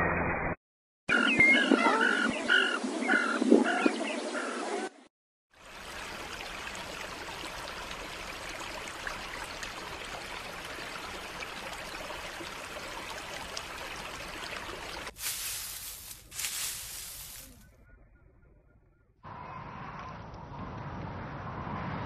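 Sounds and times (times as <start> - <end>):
stream flowing and trickling: 5.5 - 17.6.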